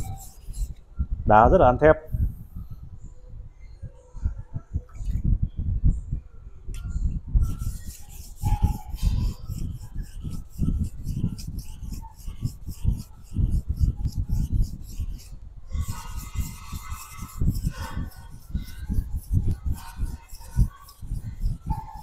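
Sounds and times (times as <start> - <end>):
knife scraping on whetstone: 0.0 - 0.8, 7.4 - 22.0.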